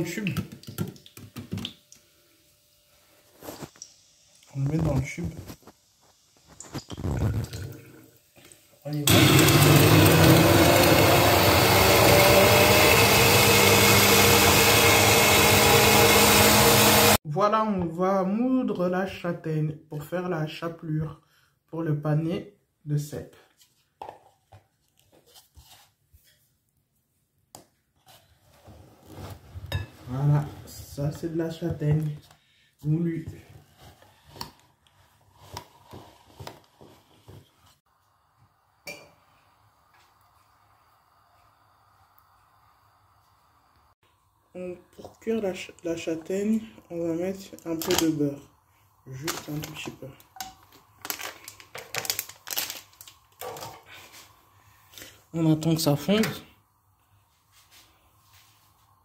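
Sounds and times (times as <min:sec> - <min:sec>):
stick blender running: 0:09.0 - 0:17.2.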